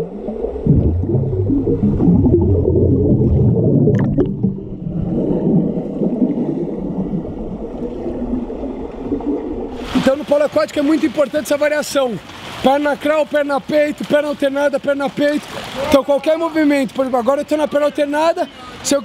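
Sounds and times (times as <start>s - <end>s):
crackle of bubbles: 0.0s - 9.8s
muffled underwater churning water: 0.0s - 11.0s.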